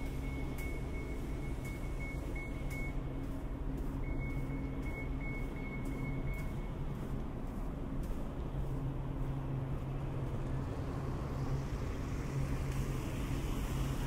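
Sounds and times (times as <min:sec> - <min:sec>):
high-pitched electronic beeps: 0:00.0 - 0:03.1, 0:04.0 - 0:06.8
low mechanical hum: 0:00.0 - 0:14.0
footsteps: 0:02.6 - 0:10.4.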